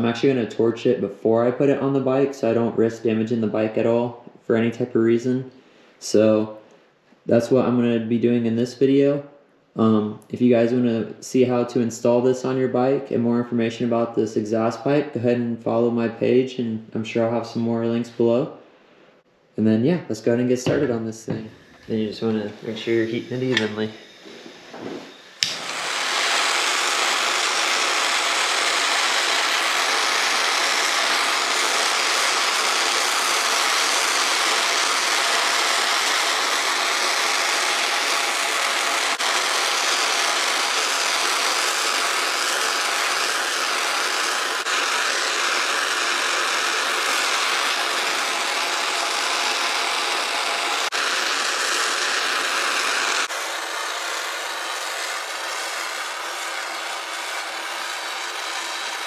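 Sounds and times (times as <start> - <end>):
gas torch hissing: 20.6 - 59.0.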